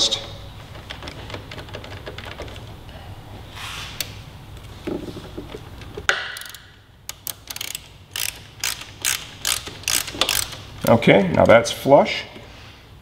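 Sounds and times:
hand ratchet clicking: 6.1 - 11.5.

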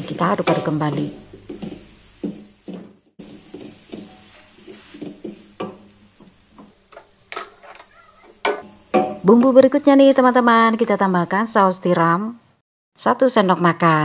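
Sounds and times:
spatula scraping a metal wok: 0.0 - 11.1.

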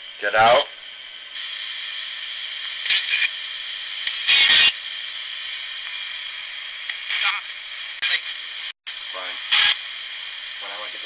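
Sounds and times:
radio static hiss: 0.0 - 11.0
choppy bursts of radio sound: 1.4 - 3.5, 4.1 - 4.8, 6.9 - 11.0
radio sweeping through stations: 2.6 - 4.8, 6.8 - 11.0.

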